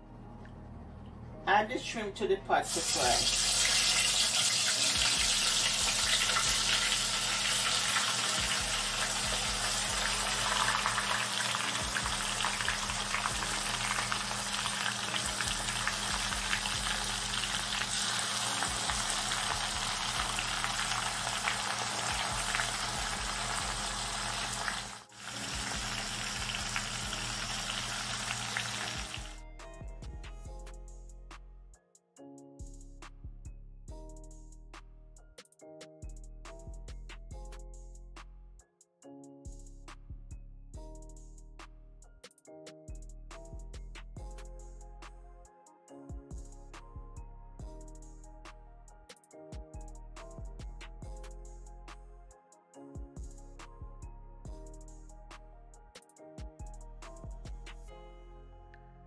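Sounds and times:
shrimp deep-frying in sizzling oil: 0:02.6 - 0:29.4.

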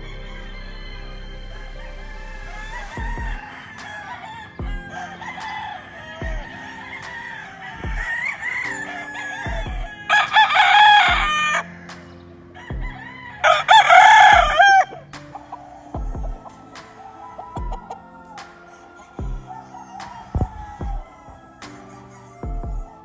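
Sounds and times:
rooster crowing: 0:00.0 - 0:11.9, 0:12.6 - 0:23.0
music with slow low beat: 0:00.0 - 0:23.0.

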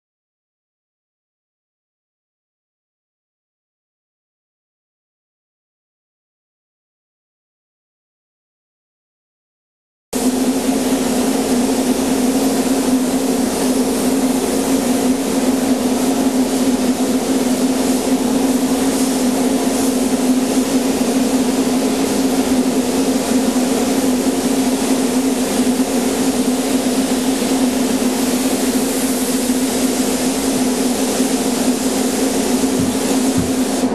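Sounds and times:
spray gun hissing: 0:10.2 - 0:33.9
ventilation hum and rushing air: 0:10.2 - 0:33.9.

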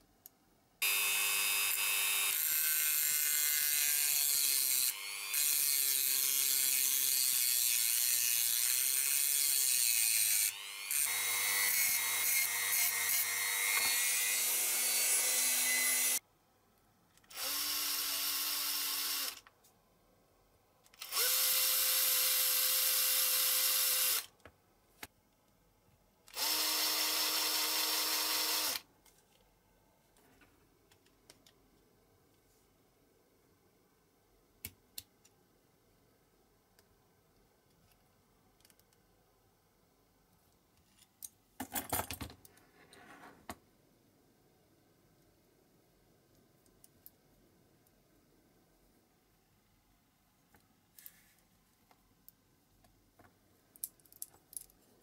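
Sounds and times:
electric drill boring into metal: 0:00.8 - 0:16.2, 0:21.0 - 0:24.3, 0:26.4 - 0:28.8.

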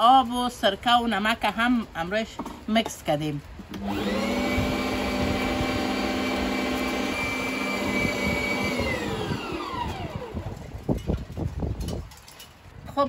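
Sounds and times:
blender motor whining: 0:03.7 - 0:10.6.

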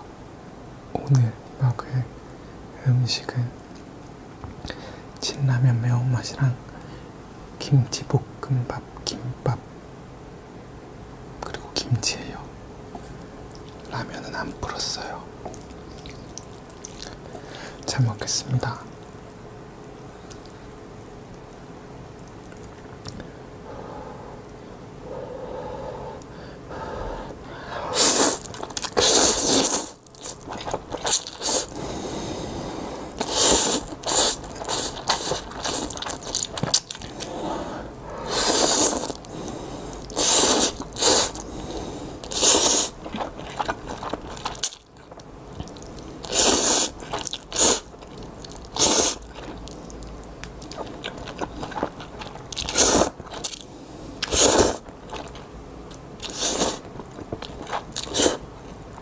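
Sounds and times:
chewing: 0:13.0 - 0:14.0, 0:15.4 - 0:17.4, 0:20.2 - 0:23.3, 0:28.0 - 0:31.8, 0:33.2 - 0:37.4, 0:42.2 - 0:59.0
noodles being slurped: 0:27.9 - 0:31.8, 0:33.1 - 0:37.4, 0:38.2 - 0:39.3, 0:39.9 - 0:41.5, 0:42.2 - 0:50.0, 0:50.6 - 0:55.4, 0:56.2 - 0:58.4.

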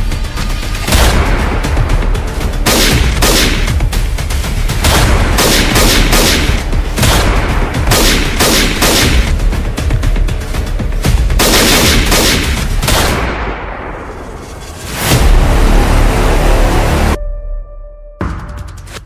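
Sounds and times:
dramatic background music: 0:00.0 - 0:19.0
gunshots with ringing tail: 0:02.7 - 0:03.8, 0:04.8 - 0:09.3.

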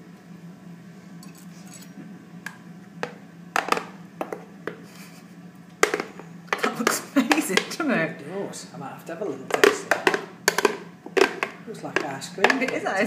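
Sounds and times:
low steady hum: 0:00.0 - 0:13.0
blender jug knocking and clinking: 0:09.5 - 0:12.8.

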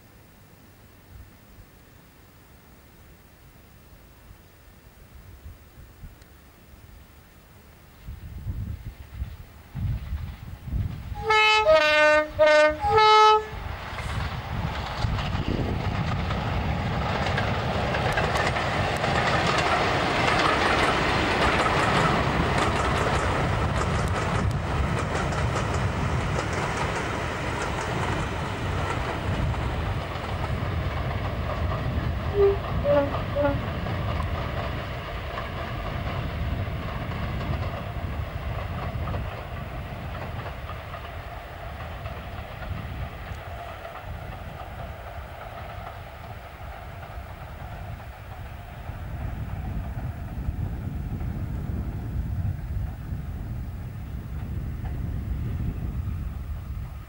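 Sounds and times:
diesel locomotive engine: 0:04.8 - 0:57.0
wheels clattering over rail joints: 0:14.7 - 0:46.0.

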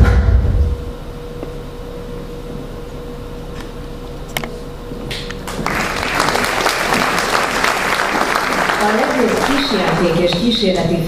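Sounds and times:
audience applause: 0:05.4 - 0:10.7.

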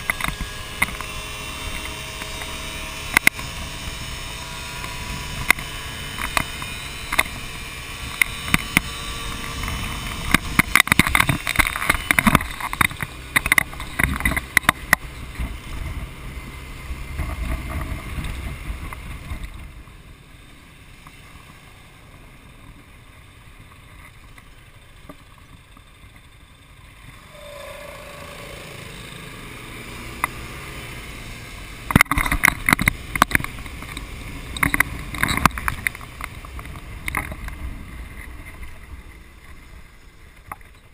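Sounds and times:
motorbike engine hum: 0:00.0 - 0:40.9.

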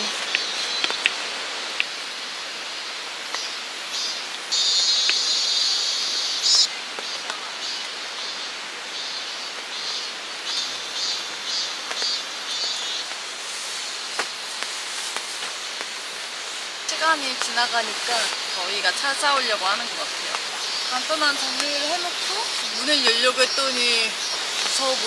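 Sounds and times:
stream rushing: 0:00.0 - 0:25.0
high-pitched insect buzz: 0:02.7 - 0:06.7, 0:09.0 - 0:13.1, 0:16.7 - 0:25.0.

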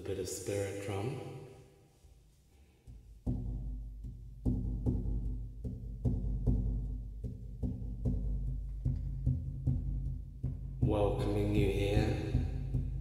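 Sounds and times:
frame drum booming beat: 0:03.2 - 0:13.0.

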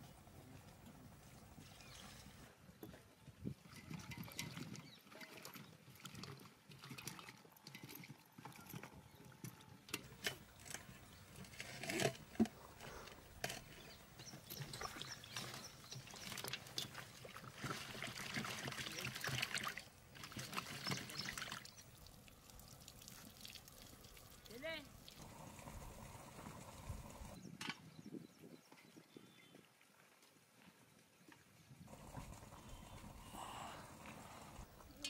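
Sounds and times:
water trickling from bowl: 0:14.2 - 0:25.3.

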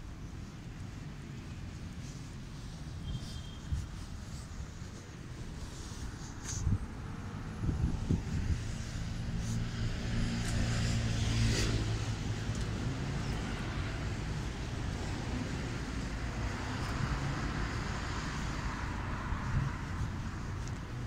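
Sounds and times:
traffic noise: 0:00.0 - 0:21.0
car passing close: 0:05.8 - 0:20.4.

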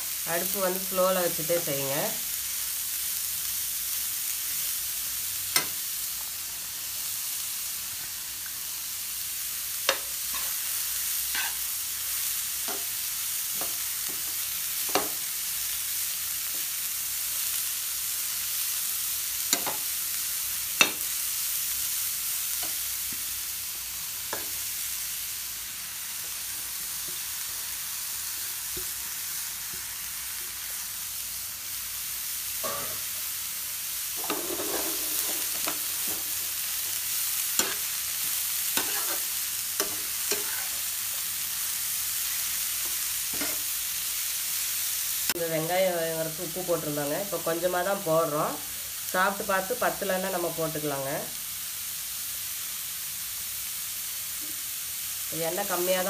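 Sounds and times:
vegetables sizzling in oil: 0:00.0 - 0:56.0
spatula scraping a pan: 0:11.3 - 0:11.7, 0:34.2 - 0:41.2, 0:42.8 - 0:43.7.

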